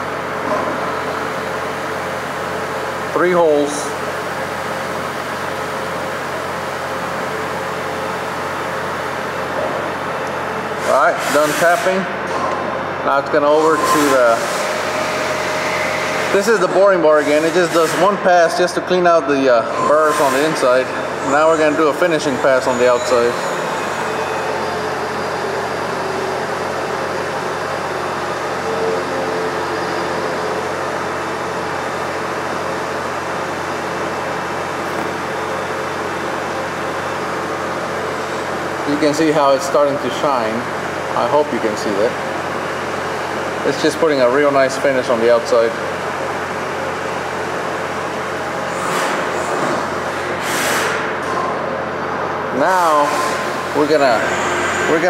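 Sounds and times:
coolant spraying hiss: 0:10.8 - 0:12.1
lathe running: 0:19.8 - 0:50.4, 0:53.2 - 0:55.0.

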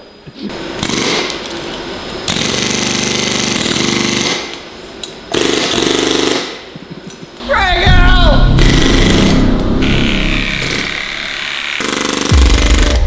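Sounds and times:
pneumatic air hammer chattering: 0:00.8 - 0:01.5, 0:05.3 - 0:06.8, 0:11.4 - 0:13.0.

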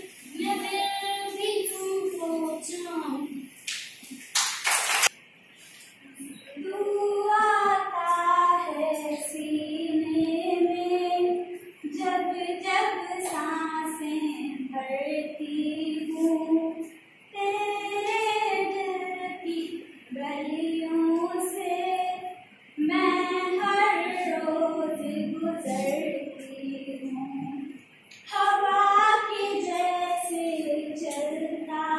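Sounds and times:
woman singing unaccompanied: 0:06.5 - 0:31.9.

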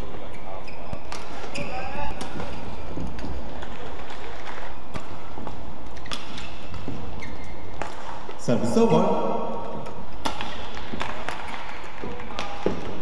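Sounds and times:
arena noise: 0:00.0 - 0:13.0
shoe squeak on court floor: 0:00.2 - 0:02.2, 0:05.9 - 0:07.8
racket striking shuttlecock: 0:01.0 - 0:07.1, 0:09.6 - 0:13.0.

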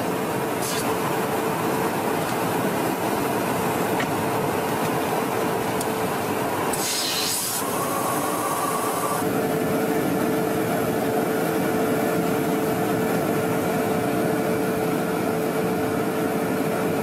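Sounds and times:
aircraft engines roaring: 0:00.0 - 0:17.0
short high hiss: 0:00.6 - 0:01.0, 0:06.7 - 0:07.6.

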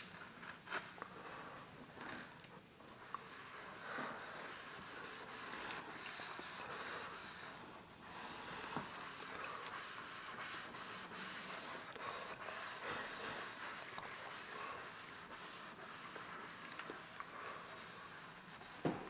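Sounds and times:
sponge scrubbing metal sink: 0:03.3 - 0:07.4, 0:08.7 - 0:19.0.

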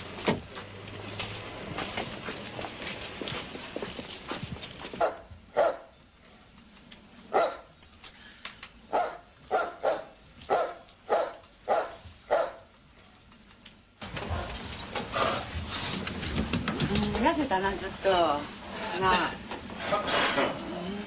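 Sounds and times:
dog barking: 0:05.0 - 0:05.9, 0:07.3 - 0:07.7, 0:08.9 - 0:12.7.

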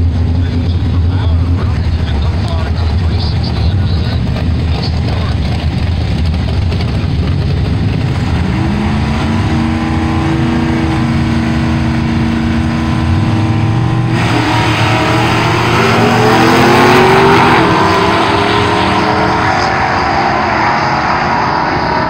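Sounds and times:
cars accelerating at full throttle: 0:00.0 - 0:22.0
racing car engines revving: 0:00.0 - 0:22.0.

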